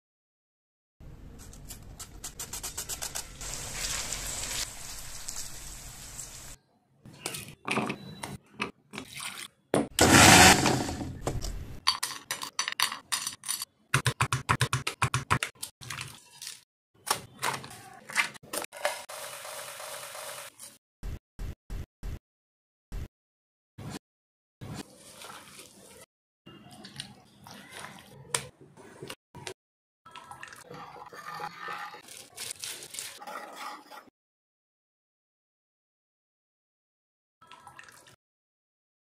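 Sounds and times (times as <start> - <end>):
electric mixer grinder running: 10.0 - 11.0.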